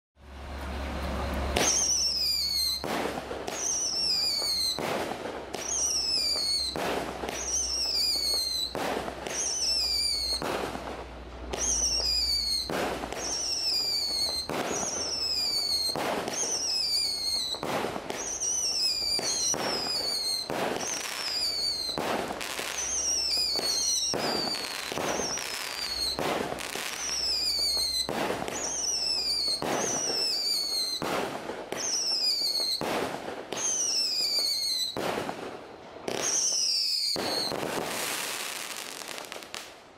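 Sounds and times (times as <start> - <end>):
firework whistle falling in pitch: 0.9 - 4.9, 5.6 - 10.4, 11.5 - 17.6, 18.2 - 22.0, 22.7 - 31.0, 31.8 - 32.8, 33.6 - 35.0, 36.2 - 37.7
firework bang: 1.2 - 39.7.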